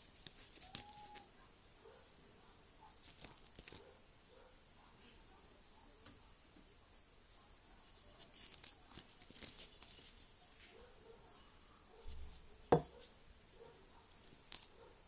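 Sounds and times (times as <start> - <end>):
handling rustles and ticks: 0.0 - 2.1, 2.8 - 4.0, 7.7 - 15.0.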